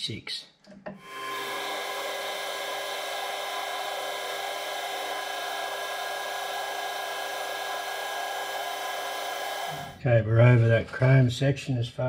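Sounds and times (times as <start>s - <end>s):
metal lathe running: 1.0s - 10.0s.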